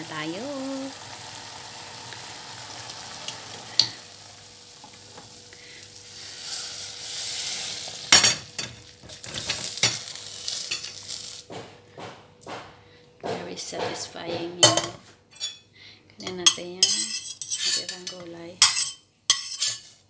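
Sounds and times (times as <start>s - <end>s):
pot of broth simmering: 0.2s - 9.4s
loud knock: 11.5s - 14.5s
metal clinking against bowl: 16.2s - 19.8s.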